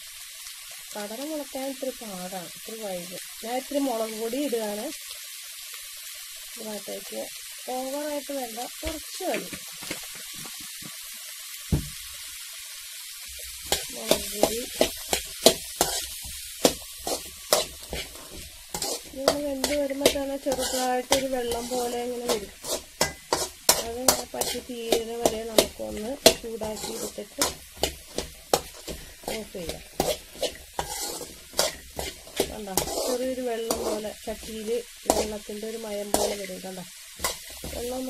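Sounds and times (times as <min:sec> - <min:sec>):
rustling hiss of moist mix: 0:13.2 - 0:38.0
spoon clinking in steel bowl: 0:18.8 - 0:28.0.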